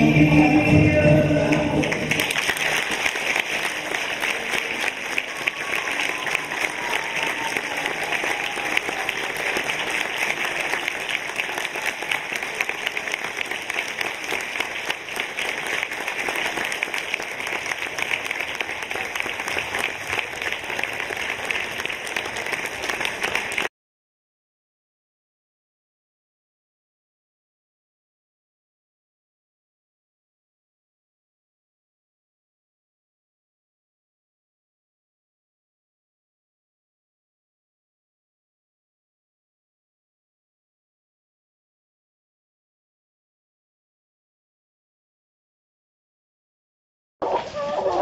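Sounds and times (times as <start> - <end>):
audience applauding: 1.4 - 23.7.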